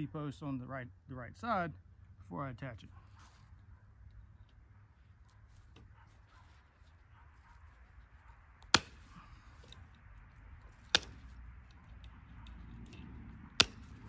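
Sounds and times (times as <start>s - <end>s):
wire cutters snapping wire: 8.6s - 14.0s.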